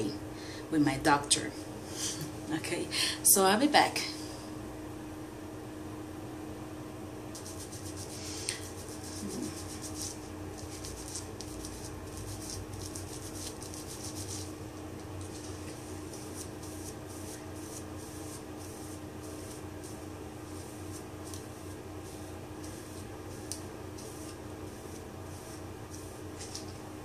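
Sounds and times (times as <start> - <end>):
steady low hum: 0.0 - 27.0
hair brush raking hair: 7.4 - 26.9.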